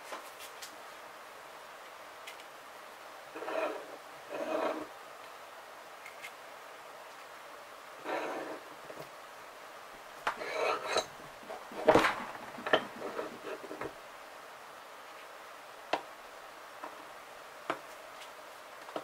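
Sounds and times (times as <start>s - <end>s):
metal clinks and knocks: 10.4s - 13.9s.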